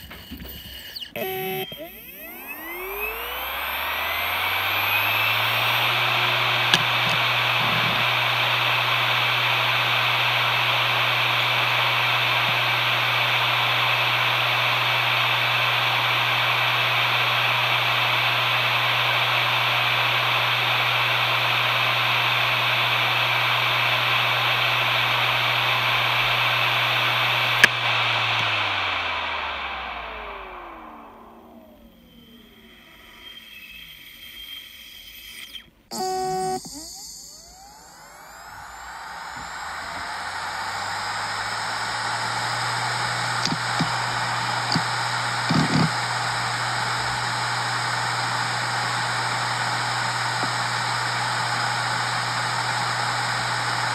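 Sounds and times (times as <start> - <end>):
hard drive whine and hum: 0.0 - 53.9
hard drive sharp clicks: 42.5 - 46.2.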